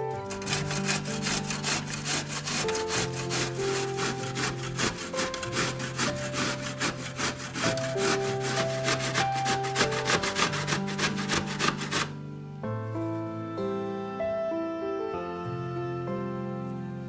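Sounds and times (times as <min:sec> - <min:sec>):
soft background music: 0:00.0 - 0:17.0
grating on box grater: 0:00.2 - 0:12.1.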